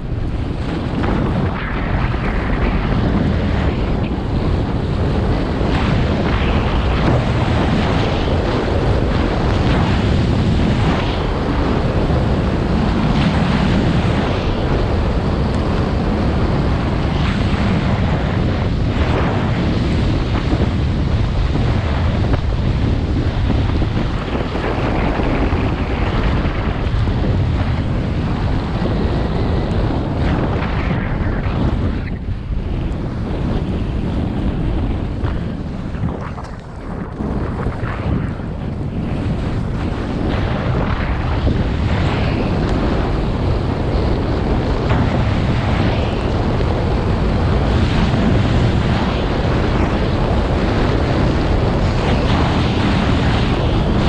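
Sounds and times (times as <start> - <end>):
wind rushing over microphone: 0.0 - 54.0
skis sliding over snow: 18.8 - 54.0.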